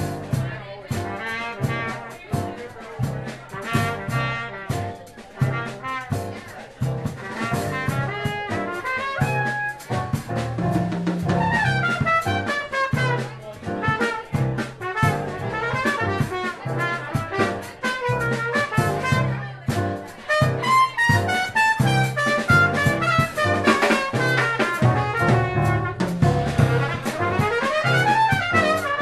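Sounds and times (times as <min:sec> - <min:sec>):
bass guitar: 0:00.0 - 0:29.0
drum kit keeping time: 0:00.0 - 0:29.0
lead melody line: 0:07.3 - 0:29.0.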